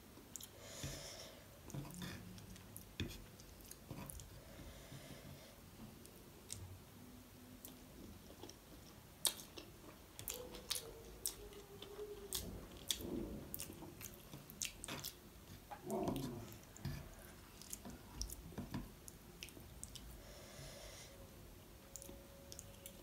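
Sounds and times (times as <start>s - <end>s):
person chewing noodles: 7.6s - 20.2s.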